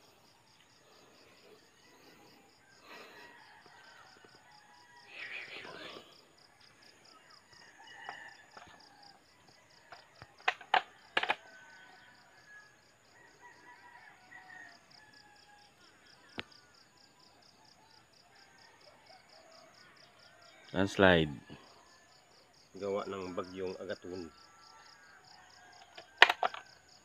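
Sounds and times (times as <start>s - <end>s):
insects chirping: 0.0s - 27.0s
sharp clicks: 9.9s - 11.4s.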